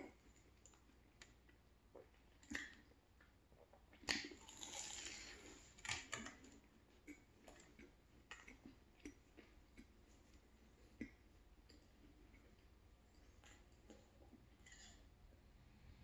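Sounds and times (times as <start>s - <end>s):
biting crunchy pastry: 3.8s - 10.0s.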